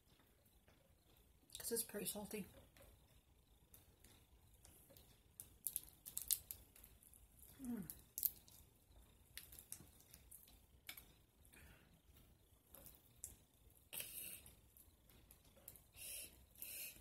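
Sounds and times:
shells cracking by hand: 0:04.9 - 0:08.7, 0:09.3 - 0:11.2.

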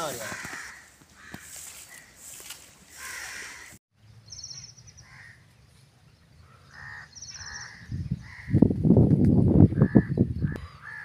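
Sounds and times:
crows cawing: 0:00.0 - 0:02.3, 0:02.9 - 0:03.8, 0:05.0 - 0:05.4, 0:06.5 - 0:08.6, 0:09.8 - 0:11.0
small birds chattering: 0:06.4 - 0:08.6.

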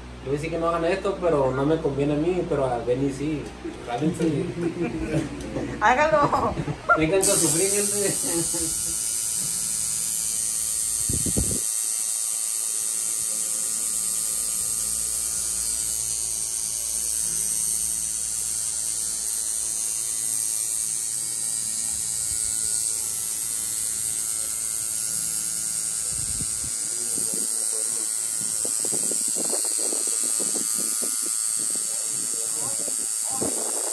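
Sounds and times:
tattoo machine buzzing: 0:07.1 - 0:33.9.

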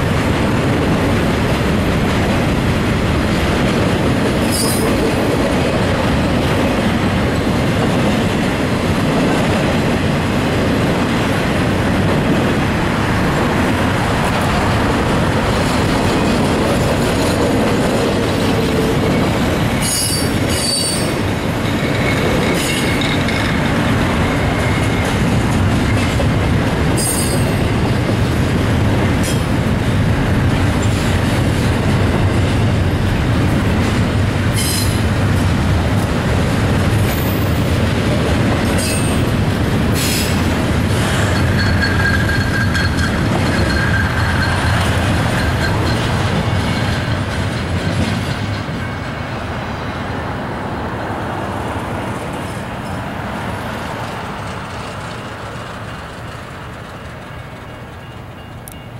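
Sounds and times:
rumble of train wheels on rail: 0:00.0 - 0:58.9
high-pitched wheel squeals: 0:19.0 - 0:21.2, 0:41.2 - 0:46.2.

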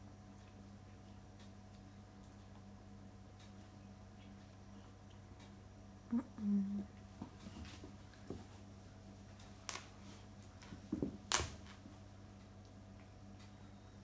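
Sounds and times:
faint steady hum: 0:00.0 - 0:14.0
paws scuffing and tapping on floor: 0:07.2 - 0:08.7.

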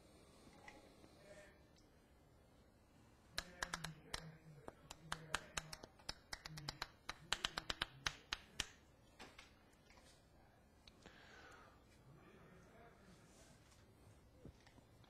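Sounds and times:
sharp clicks and taps: 0:03.4 - 0:08.8.

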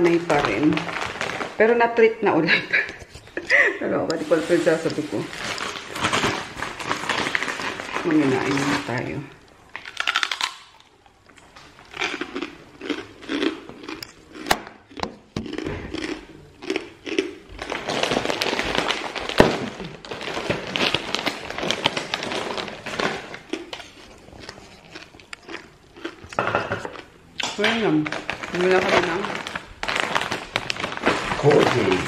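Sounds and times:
plastic bag crinkling: 0:00.0 - 0:32.0
crunchy snack being chewed: 0:09.8 - 0:19.2, 0:20.9 - 0:27.1.

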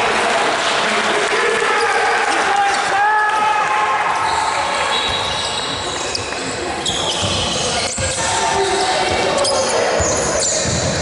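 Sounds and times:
basketball bouncing on wooden floor: 0:07.1 - 0:08.3, 0:10.0 - 0:11.0.

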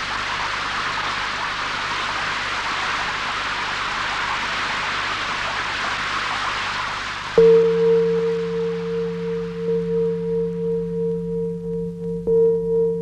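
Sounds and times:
water falling and spraying: 0:00.0 - 0:08.5.

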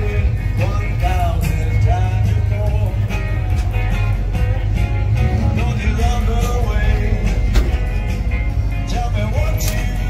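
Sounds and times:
rock and roll music with guitar: 0:00.0 - 0:10.0.

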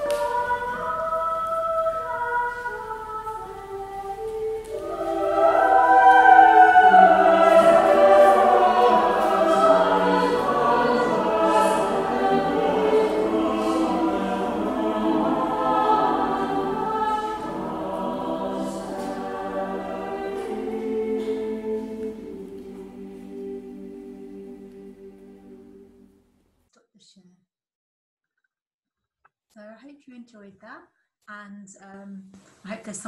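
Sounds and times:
choir singing: 0:00.0 - 0:26.2.

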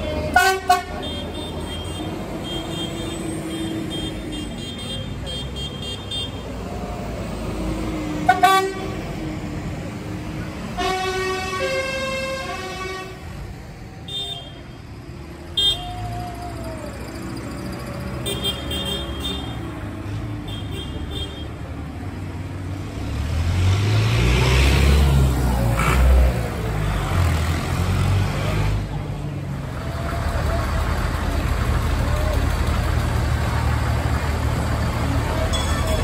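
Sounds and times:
tractor horns tooting: 0:00.0 - 0:06.5, 0:08.2 - 0:09.1, 0:10.7 - 0:13.4, 0:14.0 - 0:14.8, 0:15.5 - 0:16.1, 0:18.1 - 0:19.8, 0:20.4 - 0:21.6, 0:35.3 - 0:36.0
tractor engine passing: 0:22.8 - 0:36.0.

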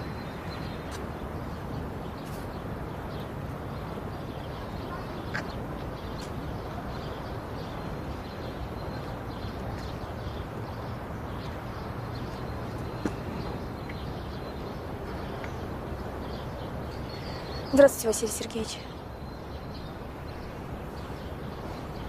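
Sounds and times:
outdoor background ambience: 0:00.0 - 0:22.0.

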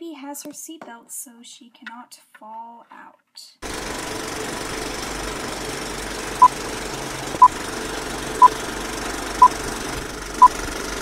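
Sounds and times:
film projector whirring: 0:03.6 - 0:11.0.

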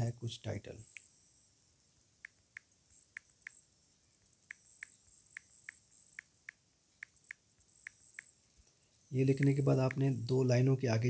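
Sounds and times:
touchscreen keyboard clicks: 0:09.3 - 0:10.0.

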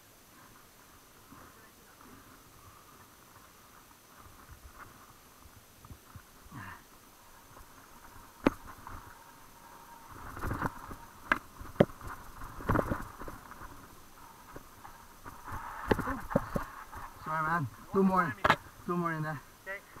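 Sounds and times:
bike tyre rumble on dirt: 0:00.3 - 0:20.0
bike knocking and rattling: 0:05.9 - 0:18.8.

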